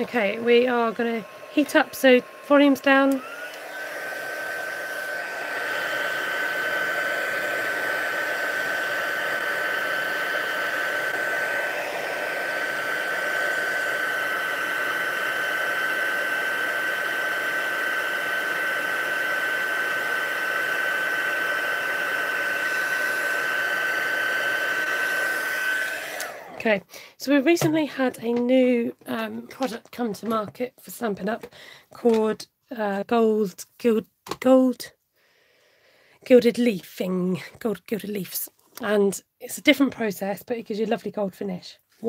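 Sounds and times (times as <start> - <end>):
heat tool blowing with whine: 0.0 - 26.7.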